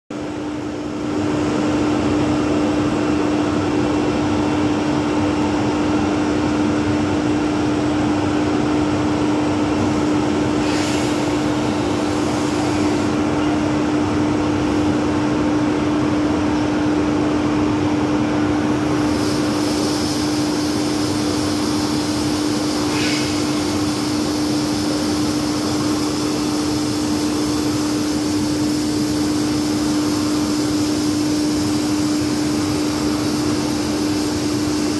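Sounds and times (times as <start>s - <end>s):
extrusion machine drone: 0.3s - 34.9s
brief hisses: 10.6s - 11.4s, 22.7s - 24.6s
higher hiss: 18.9s - 34.9s.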